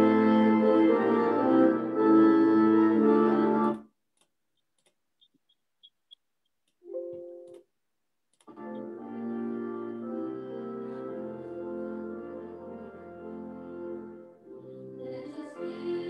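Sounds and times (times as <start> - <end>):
organ playing hymn chords: 0.0 - 3.8, 6.9 - 7.6, 8.5 - 16.0.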